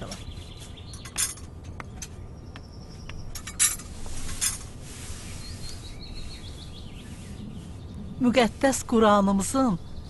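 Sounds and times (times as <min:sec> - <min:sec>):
quick bird chirps: 0:05.0 - 0:08.2.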